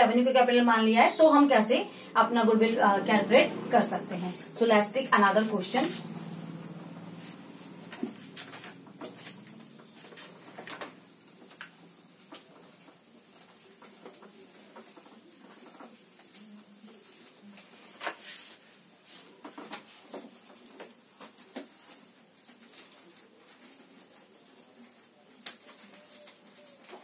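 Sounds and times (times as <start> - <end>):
cloth swishing on whiteboard: 3.1 - 20.4.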